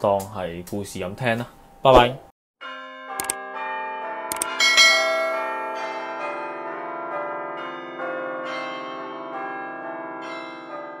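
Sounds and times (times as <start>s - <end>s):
bell-like chimes ringing: 4.4s - 6.6s.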